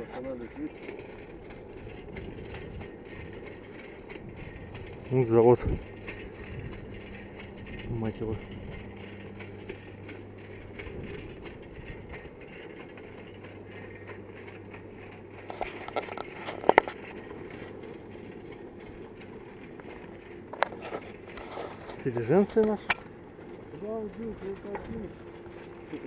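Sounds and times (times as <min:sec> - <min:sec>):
bicycle tyres on rough asphalt: 0:00.0 - 0:26.0
low steady hum: 0:00.0 - 0:26.0
sharp rattling clicks: 0:00.0 - 0:26.0.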